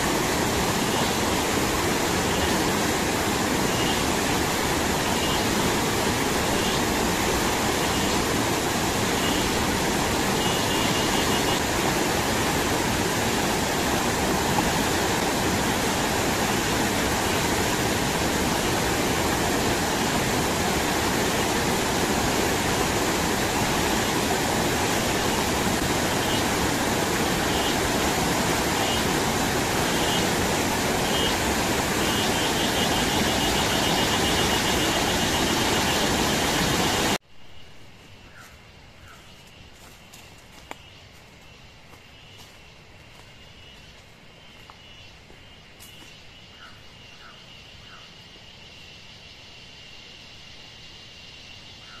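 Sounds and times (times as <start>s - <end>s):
river rushing over rapids: 0.0s - 37.2s.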